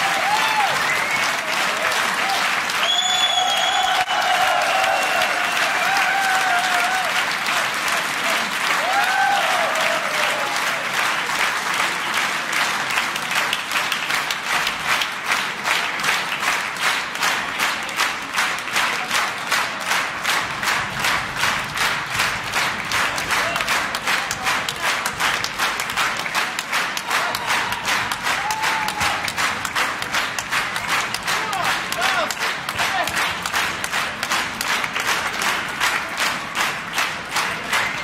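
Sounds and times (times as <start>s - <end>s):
audience applauding: 0.0s - 38.0s
rhythmic clapping in unison: 0.0s - 38.0s.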